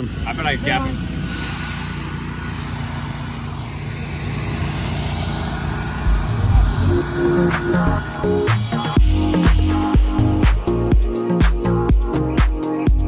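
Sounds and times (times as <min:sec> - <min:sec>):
wind noise on microphone: 0:06.0 - 0:08.1
music with heavy bass thumps: 0:06.0 - 0:13.0.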